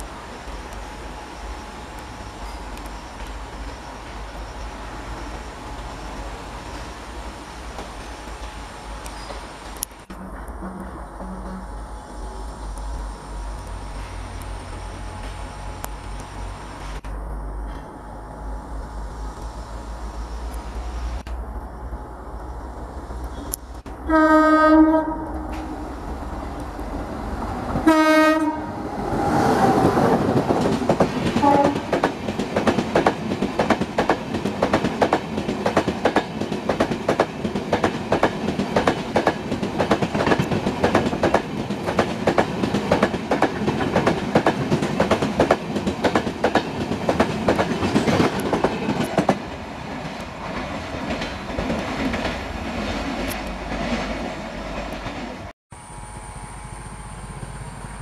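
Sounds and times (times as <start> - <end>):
train wheels clattering over rail joints: 29.8 - 55.4.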